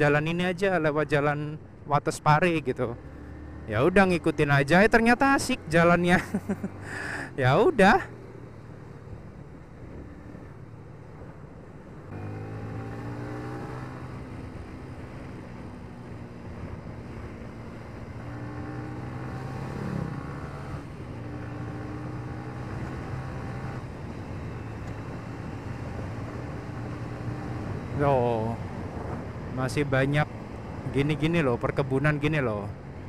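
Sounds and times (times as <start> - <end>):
motorcycle engine accelerating: 12.1 - 29.6.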